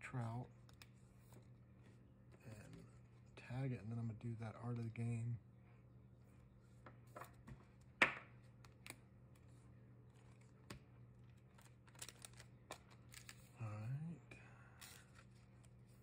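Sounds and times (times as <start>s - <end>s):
plastic sleeve rustling: 11.3s - 13.6s.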